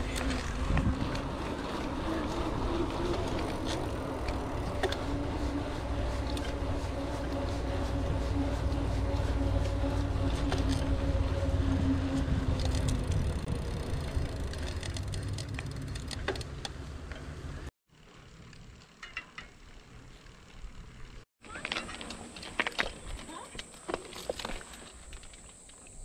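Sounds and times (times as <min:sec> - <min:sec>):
steady hum: 0:00.0 - 0:13.5
tyre and wind noise: 0:00.0 - 0:17.7
bike rattles and clicks: 0:00.0 - 0:26.0.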